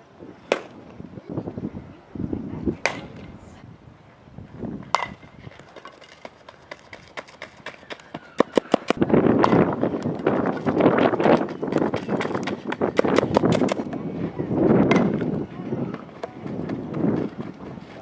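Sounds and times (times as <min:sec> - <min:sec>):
bat striking ball: 0:00.5 - 0:00.8, 0:02.8 - 0:03.4, 0:04.8 - 0:06.2, 0:08.5 - 0:10.2, 0:14.9 - 0:15.2.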